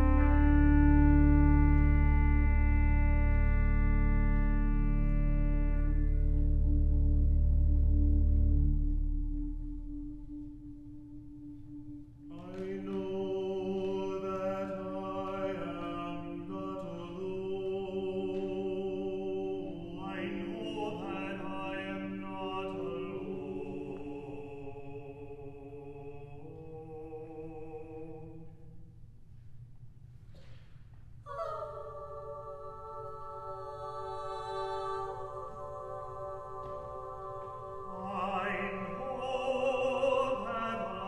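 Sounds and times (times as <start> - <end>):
choir singing: 0.0 - 6.7, 11.8 - 28.7, 31.3 - 41.0
organ: 0.0 - 24.7.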